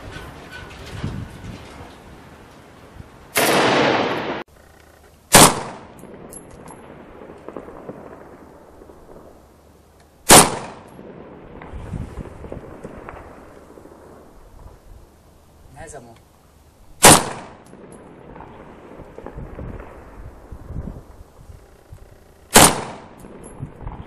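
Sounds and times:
single rifle shots with echo: 3.4 - 4.5, 5.3 - 9.4, 10.2 - 11.7, 17.0 - 20.0, 22.5 - 24.0.

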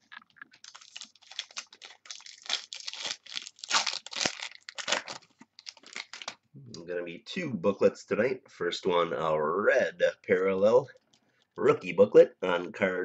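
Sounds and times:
wrapper tearing and crinkling: 0.1 - 6.4.

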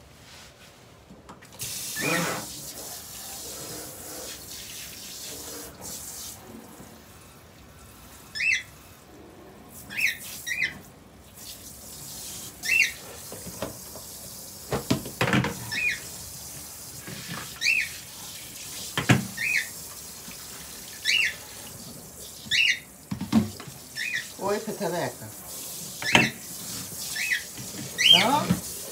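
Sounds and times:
running tap water: 1.4 - 28.9
cockatiel chirping: 12.6 - 13.0
dishes knocking in sink: 19.0 - 19.4, 23.1 - 23.8.

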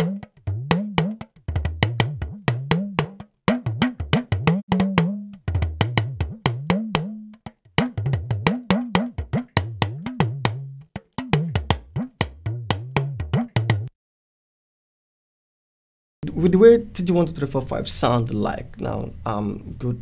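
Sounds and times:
talking drum played fast: 0.0 - 13.9.

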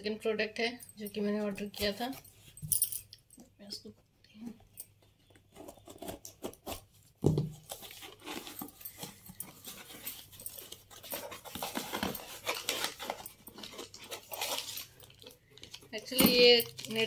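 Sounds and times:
scratching tearing and rustling: 5.2 - 17.0.

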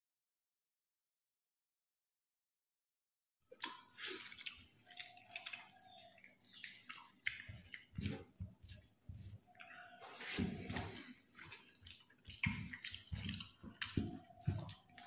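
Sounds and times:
chewing noises: 3.5 - 15.0
fingers squishing rice: 3.5 - 15.0.

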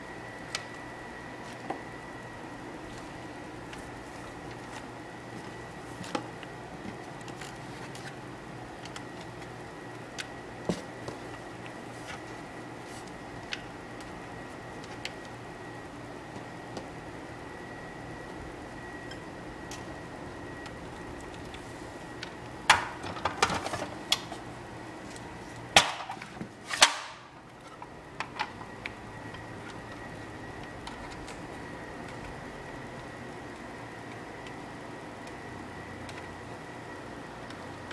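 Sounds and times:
faint high whine: 0.0 - 25.6, 27.3 - 37.9
low hum: 17.0 - 23.6.

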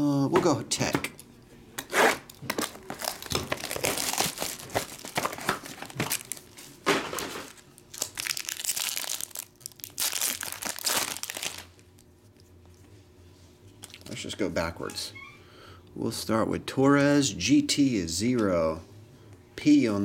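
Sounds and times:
foil pack crinkling and tearing: 2.2 - 11.8.

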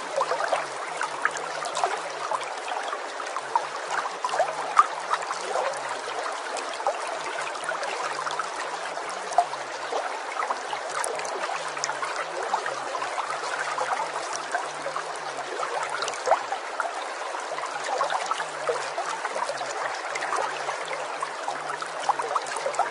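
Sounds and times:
small water splashes: 0.0 - 22.9
stream running water: 0.0 - 22.9.

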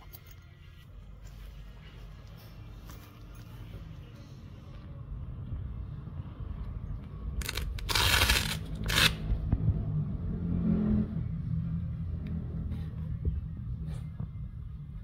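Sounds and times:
hook-and-loop patch ripping: 7.4 - 9.2.

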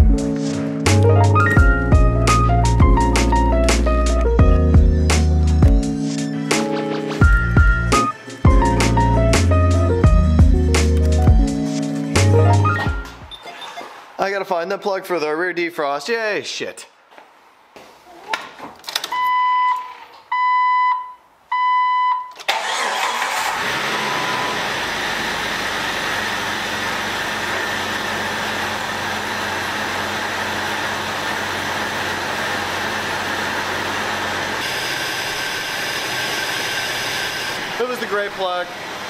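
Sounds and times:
car engine starting and running: 0.0 - 13.4, 22.4 - 39.0
dashboard warning chime: 19.2 - 22.4.

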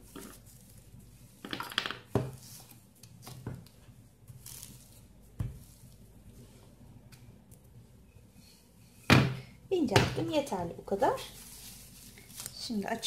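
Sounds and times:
plastic film crinkling: 11.0 - 13.0.

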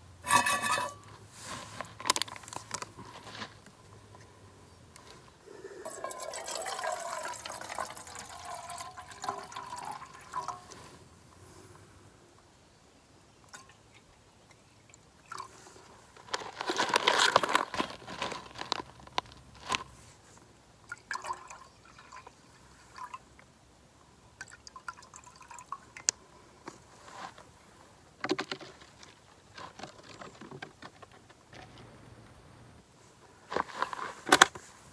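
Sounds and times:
rustling: 0.2 - 11.9, 15.3 - 20.5, 26.6 - 34.9
plastic packaging crinkling: 16.2 - 19.9.

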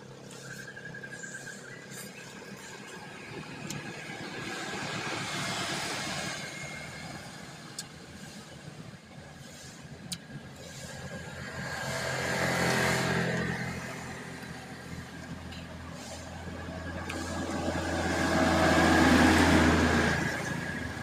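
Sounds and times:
vehicle passing: 10.7 - 21.0
motorbike engine passing: 11.2 - 15.2, 16.9 - 21.0.

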